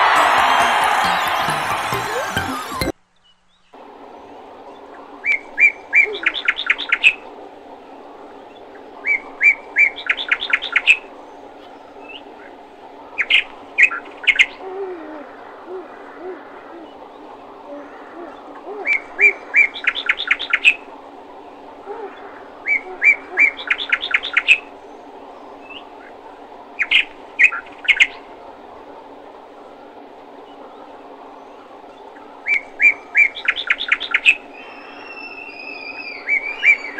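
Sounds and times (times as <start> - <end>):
songbird chirping: 2.4 - 36.9.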